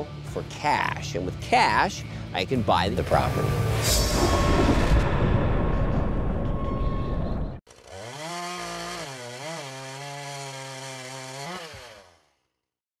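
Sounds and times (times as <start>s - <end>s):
loud noisy passage: 3.2s - 6.9s
small engine revving: 7.7s - 12.3s.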